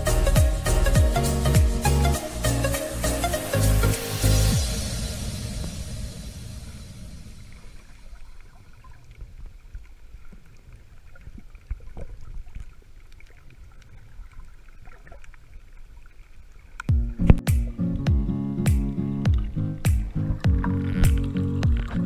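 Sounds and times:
electronic music with heavy beat: 0.0 - 7.2, 16.9 - 22.0
underwater rumble of moving water: 4.8 - 16.8, 19.3 - 22.0.

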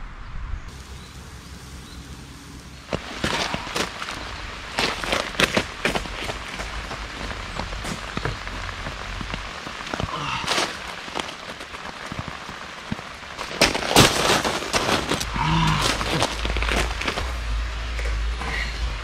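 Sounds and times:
heavy rain on gravel: 0.7 - 19.0
firewood and gear clattering: 2.9 - 17.4.

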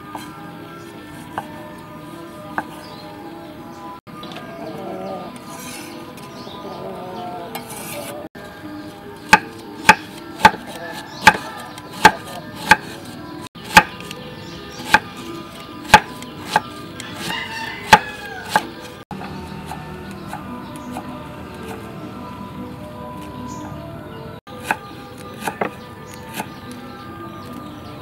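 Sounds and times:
cleaver knocking on wooden block: 9.3 - 12.9, 15.9 - 17.3, 25.4 - 26.5.

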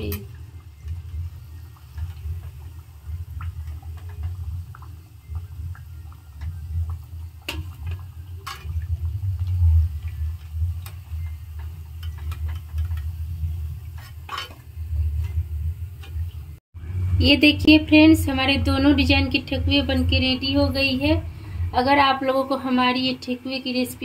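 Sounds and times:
food deep-frying in hot oil: 0.0 - 16.9
steady low hum: 0.0 - 24.0
steel spoon scraping a pan: 9.6 - 16.2.

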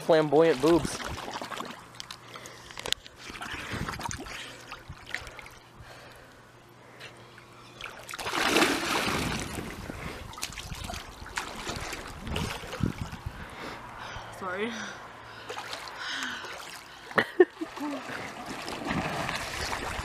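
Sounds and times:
pool water splashing: 0.0 - 2.5, 3.2 - 5.7, 7.3 - 13.2, 15.3 - 20.0
swimmer diving into water: 7.8 - 13.2, 15.5 - 20.0.

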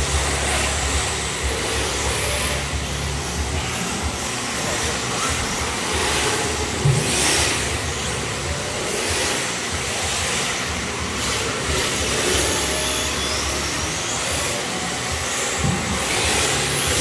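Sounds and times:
rc car motor whine: 0.0 - 17.0.

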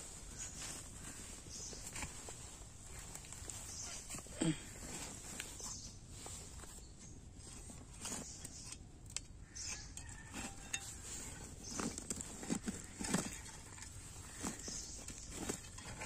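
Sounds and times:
spade scraping into dry soil: 9.6 - 16.0.

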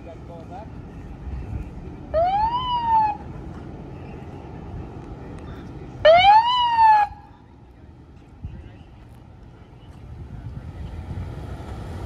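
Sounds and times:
low steady rumble: 0.0 - 12.0.

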